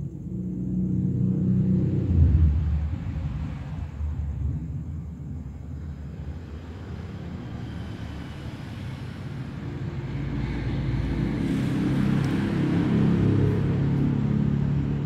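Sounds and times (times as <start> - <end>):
low motor rumble: 0.0 - 7.9.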